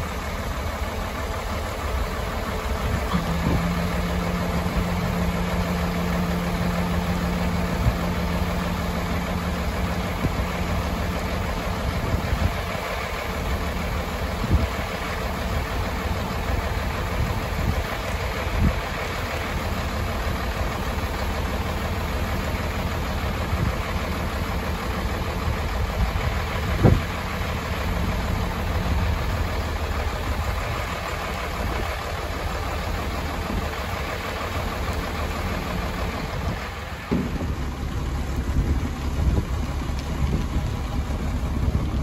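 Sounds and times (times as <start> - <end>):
diesel engine idling: 0.0 - 42.0
truck bed clunk: 2.7 - 11.4, 36.3 - 40.4.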